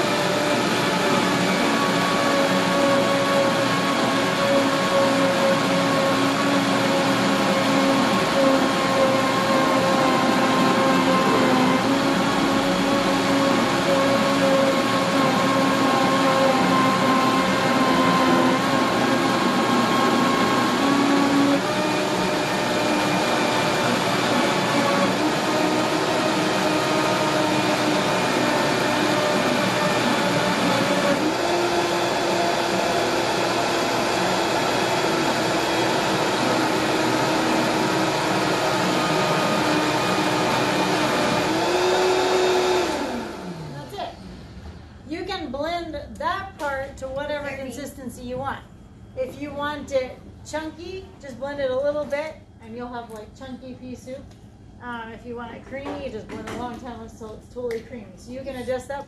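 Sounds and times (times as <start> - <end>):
blender motor whine: 0.0 - 44.8.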